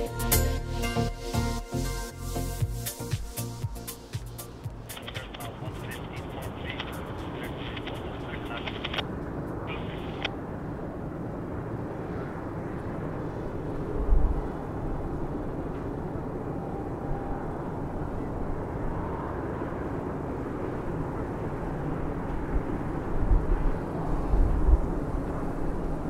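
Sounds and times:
freight train rumbling on bridge: 4.5s - 8.6s.

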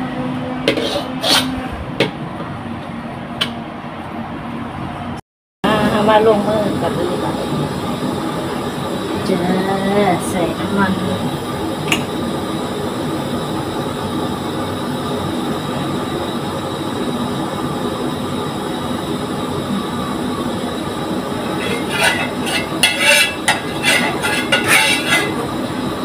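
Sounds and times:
metal spatula scraping frying pan: 0.7s - 1.6s, 21.4s - 25.9s.

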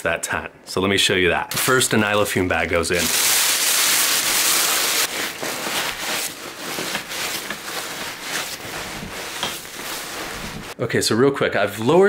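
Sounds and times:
plastic bag crinkling: 2.9s - 10.8s
fabric rustling: 3.0s - 10.8s.

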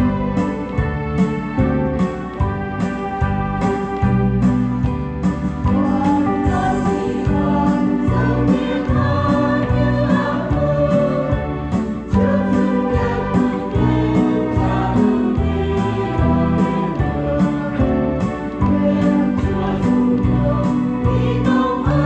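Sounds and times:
instrumental accompaniment: 0.0s - 22.0s
choir singing a hymn: 5.8s - 22.0s.

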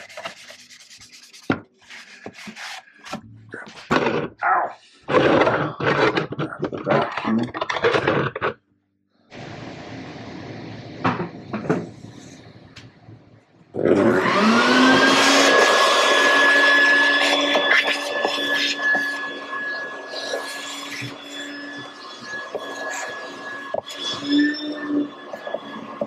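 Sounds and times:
shop vacuum running: 9.3s - 13.0s, 13.7s - 26.0s.

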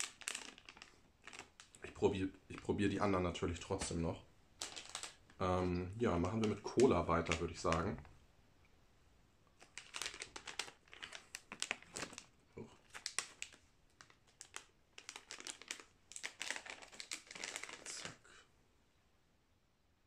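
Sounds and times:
plastic bag crinkling: 0.0s - 2.7s, 4.6s - 5.4s, 6.2s - 8.1s, 9.6s - 18.3s.

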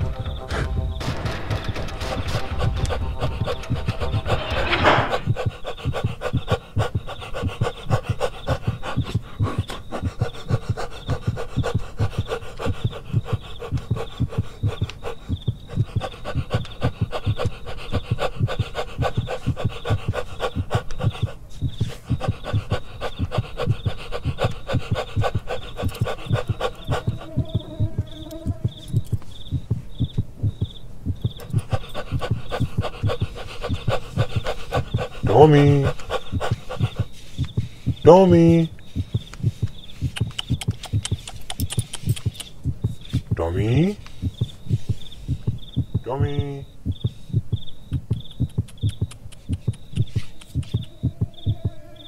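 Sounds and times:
dog panting: 0.0s - 52.0s.

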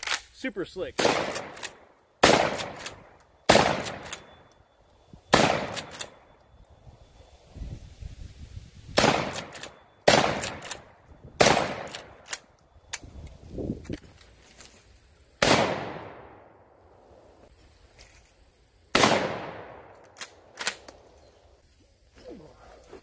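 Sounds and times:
shotgun lever clacking: 0.0s - 0.3s, 20.0s - 21.0s
shotgun shots: 1.0s - 4.3s, 5.3s - 6.2s, 9.0s - 12.3s, 15.4s - 16.4s, 18.9s - 19.9s.

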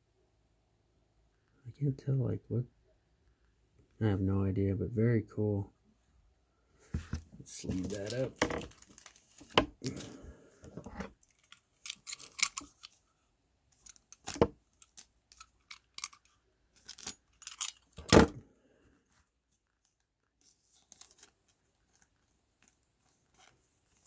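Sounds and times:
plastic card sleeve crinkling: 7.5s - 10.1s, 11.1s - 13.0s, 13.8s - 18.0s, 19.8s - 24.0s.

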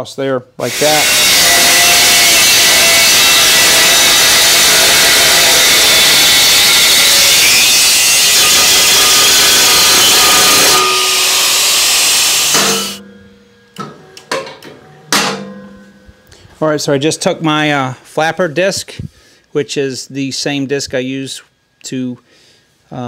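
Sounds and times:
angle grinder cutting metal: 0.6s - 13.0s.

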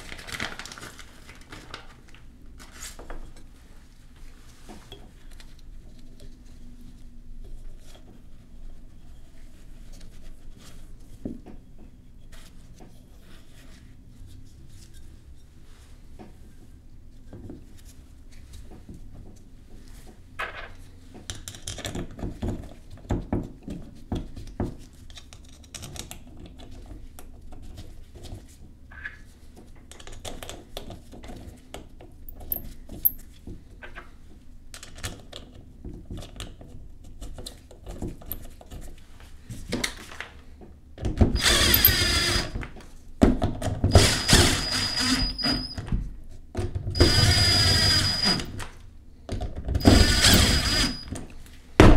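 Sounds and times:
cordless power driver running: 41.4s - 42.5s, 43.9s - 45.6s, 47.0s - 48.6s, 49.8s - 51.1s.

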